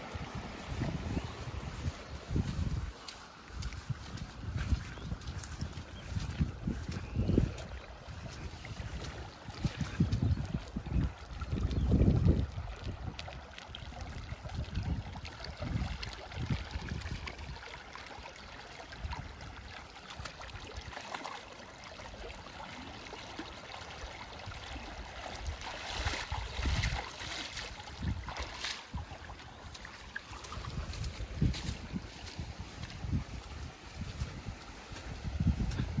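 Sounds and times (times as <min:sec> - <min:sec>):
wind buffeting microphone: 0:00.0 - 0:17.6, 0:25.4 - 0:36.0
water rushing and trickling: 0:00.0 - 0:36.0
hands splashing in water: 0:25.2 - 0:33.4.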